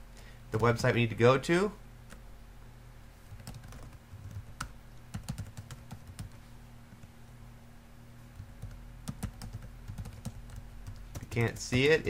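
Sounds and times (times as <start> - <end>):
low electrical hum: 0.0 - 12.0
typing on computer keyboard: 3.3 - 6.4, 8.4 - 11.8.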